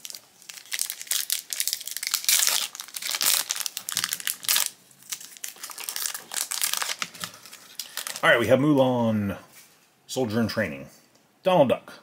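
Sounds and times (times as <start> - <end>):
foil wrapper crinkling and tearing: 0.0 - 8.3.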